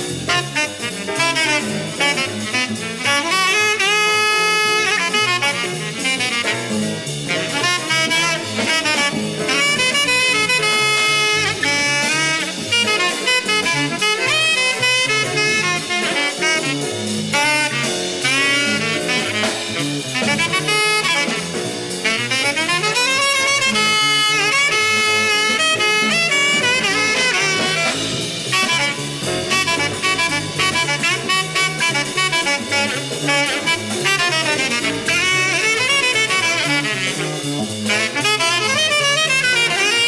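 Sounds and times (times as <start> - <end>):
jazz bass piano and drums: 0.0 - 40.0
tenor saxophone solo: 0.0 - 40.0.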